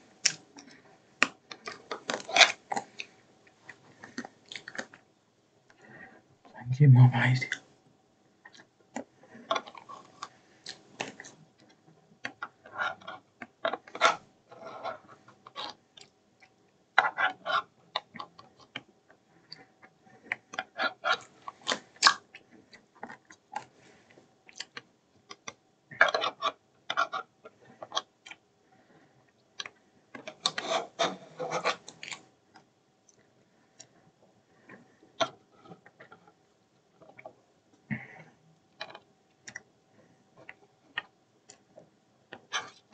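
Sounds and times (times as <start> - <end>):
faint steady hum: 0.0 - 42.9.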